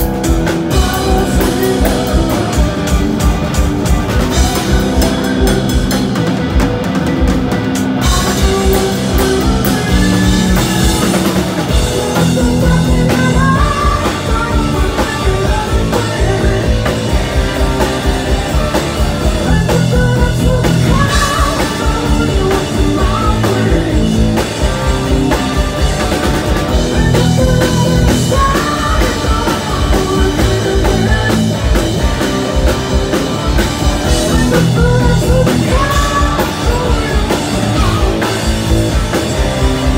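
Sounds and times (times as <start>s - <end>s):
bass guitar: 0.0s - 39.9s
distorted electric guitar: 0.0s - 39.9s
driving drum kit: 0.0s - 39.9s
man singing lead vocal: 0.7s - 2.8s, 8.1s - 11.2s, 12.0s - 18.7s, 19.3s - 25.2s, 26.8s - 38.5s.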